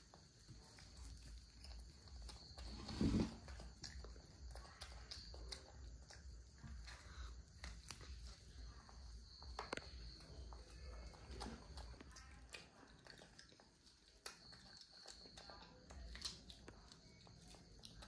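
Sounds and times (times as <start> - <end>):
faint clicks and taps of eating: 0.0 - 2.7, 3.4 - 18.0
chewing: 0.0 - 18.0.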